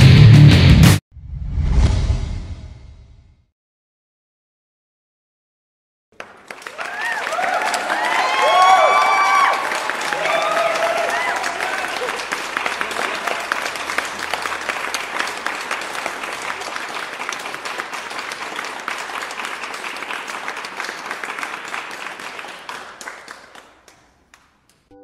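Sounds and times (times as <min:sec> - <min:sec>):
audience applauding: 0:06.2 - 0:24.8.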